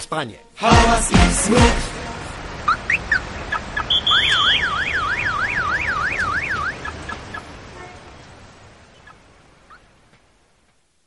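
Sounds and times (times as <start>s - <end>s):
high tone warbling up and down: 3.8s - 6.9s
short high chirps: 3.9s - 6.0s.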